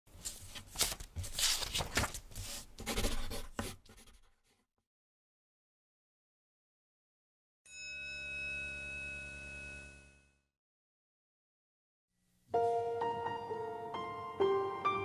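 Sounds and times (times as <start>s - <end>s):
scratchy handwriting: 2.8s - 4.4s.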